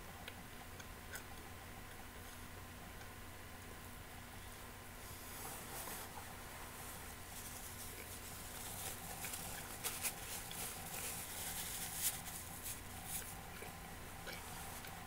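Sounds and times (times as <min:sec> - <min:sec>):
paper napkin rustling: 0:05.0 - 0:13.4.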